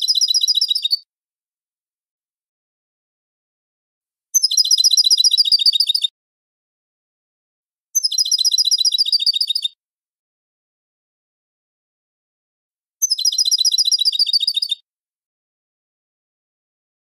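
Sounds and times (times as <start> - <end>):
goldfinch singing: 13.0 - 14.8.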